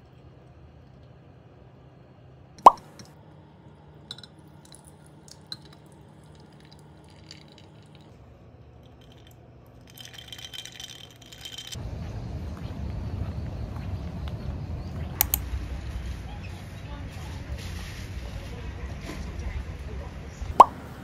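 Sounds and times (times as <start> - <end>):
tea pouring: 4.0 - 11.8
ice clinking against a glass: 4.1 - 4.8, 8.8 - 11.8
ice rattling in a glass: 4.1 - 11.8.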